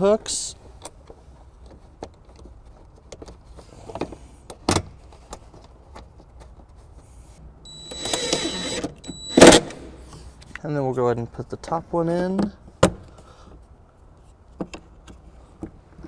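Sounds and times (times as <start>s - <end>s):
power driver whining: 7.7s - 9.9s.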